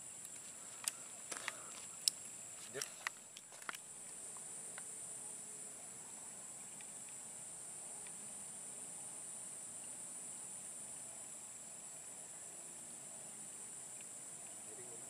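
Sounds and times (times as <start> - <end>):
insects buzzing drone: 0.0 - 15.0
faint ticks: 0.2 - 4.9, 6.6 - 7.2, 8.0 - 8.3, 9.8 - 10.1, 13.4 - 14.9.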